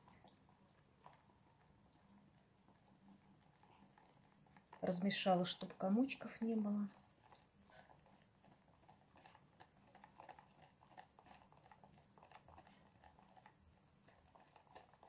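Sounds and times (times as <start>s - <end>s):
wire whisk stirring batter: 3.0s - 15.0s.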